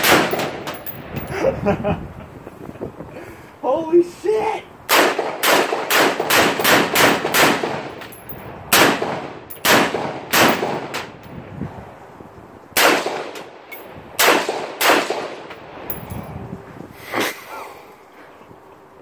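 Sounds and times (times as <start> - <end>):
rifle shots: 0.0 - 0.8, 4.9 - 8.0, 8.7 - 11.1, 12.8 - 13.5, 14.2 - 15.5.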